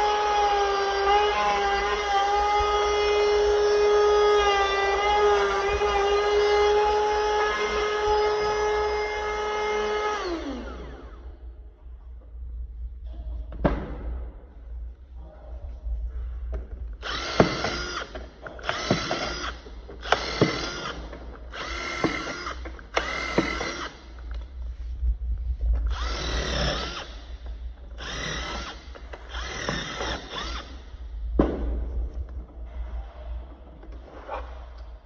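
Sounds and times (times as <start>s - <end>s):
cordless drill motor whining: 0.0s - 11.3s, 17.0s - 24.4s, 25.9s - 31.1s
steady low hum: 0.0s - 35.0s.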